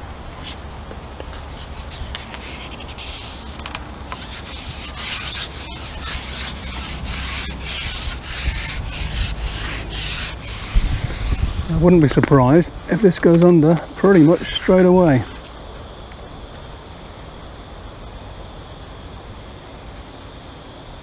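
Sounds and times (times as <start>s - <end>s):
wind rumbling on microphone: 0.0s - 13.5s
rubbing strokes: 1.2s - 12.0s, 14.0s - 15.5s.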